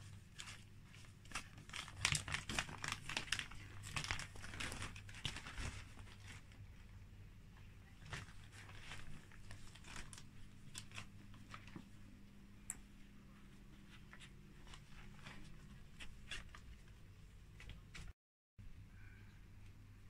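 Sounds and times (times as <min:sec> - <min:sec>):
kittens scratching and rustling fabric: 0:00.0 - 0:07.0, 0:07.6 - 0:12.4, 0:13.0 - 0:18.2
low room hum: 0:00.0 - 0:20.0.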